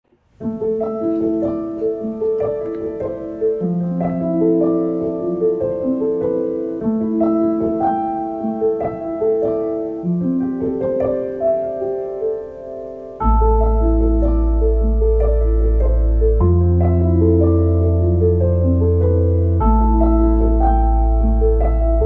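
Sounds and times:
gentle piano melody: 0.1 - 22.0.

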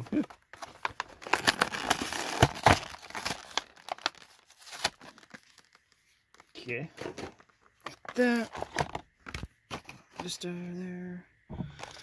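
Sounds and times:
plastic crackling and crinkling: 0.1 - 10.4
card ripping: 1.2 - 5.6.

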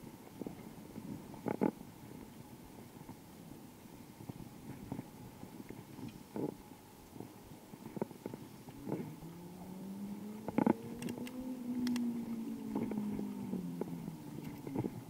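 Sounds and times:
vehicle engine hum passing: 8.7 - 15.0.

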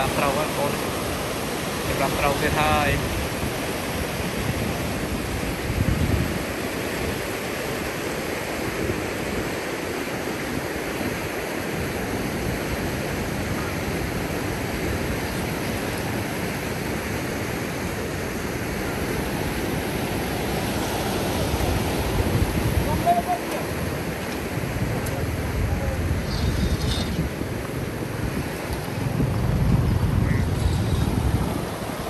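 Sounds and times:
steady rushing noise: 12.6 - 32.0.

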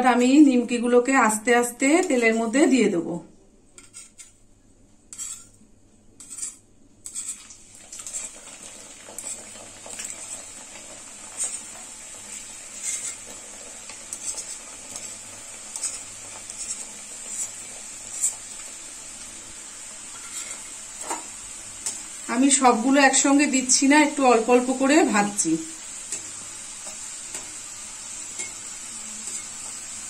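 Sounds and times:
oil sizzling: 6.2 - 30.0.

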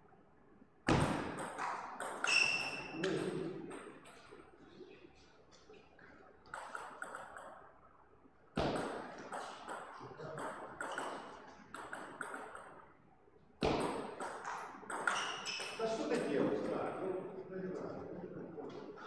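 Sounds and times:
table tennis ball clicking: 6.5 - 7.6.

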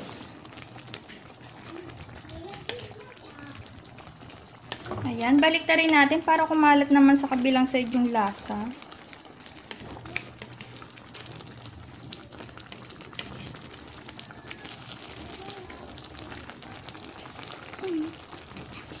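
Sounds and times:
small bubbling pops: 0.0 - 6.2, 6.9 - 19.0
fish simmering in sauce sizzling: 0.0 - 19.0
wooden spatula scraping pan: 12.7 - 13.8, 18.5 - 19.0.

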